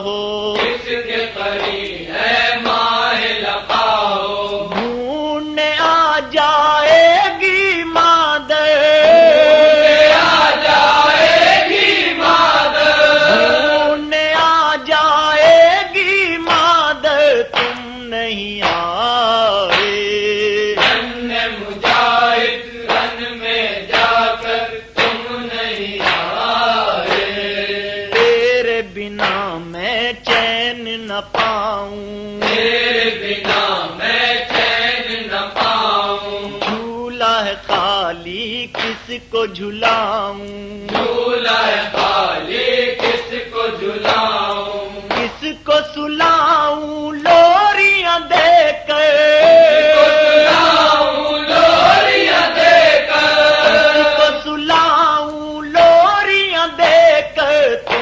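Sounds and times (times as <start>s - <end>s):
voices chanting a lament: 0.0s - 58.0s
man chanting a lament: 4.9s - 10.1s, 13.0s - 20.8s.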